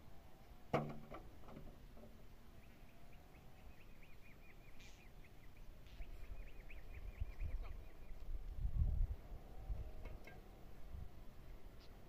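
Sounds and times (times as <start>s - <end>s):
small bird chirping: 2.6s - 8.3s.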